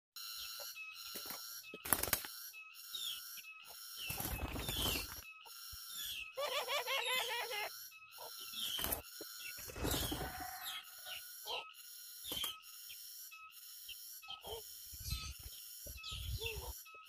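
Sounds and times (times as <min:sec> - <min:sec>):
birds chirping: 0:02.5 - 0:17.0
warbling bird call: 0:09.6 - 0:11.8.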